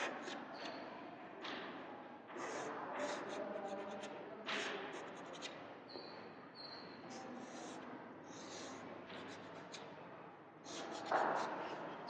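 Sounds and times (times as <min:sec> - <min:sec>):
chalk scraping on blackboard: 0:02.4 - 0:05.6, 0:07.1 - 0:09.8, 0:10.7 - 0:11.9
thin high chalk squeak: 0:05.9 - 0:07.8.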